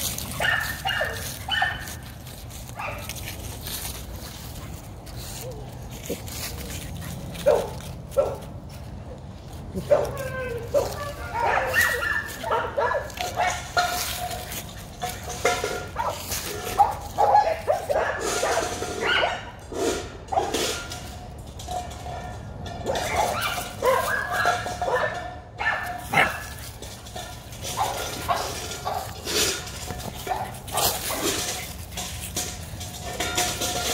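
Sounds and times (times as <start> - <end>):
puppy barking and yipping: 0.2 - 3.2, 7.4 - 8.4, 9.8 - 14.6, 16.0 - 19.5, 22.9 - 26.6.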